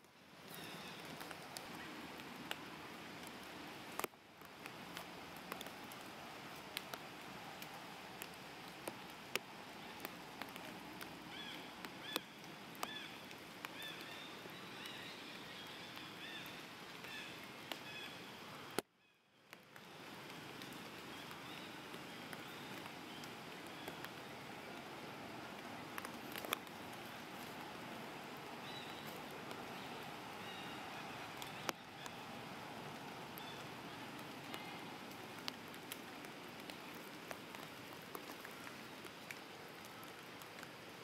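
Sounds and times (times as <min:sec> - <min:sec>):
steady hiss: 0:00.0 - 0:18.8, 0:19.4 - 0:41.0
small clicks and ticks: 0:00.4 - 0:07.0, 0:07.6 - 0:15.6, 0:25.6 - 0:27.6, 0:33.3 - 0:40.8
faint high chirping calls: 0:11.3 - 0:18.4, 0:26.0 - 0:32.4.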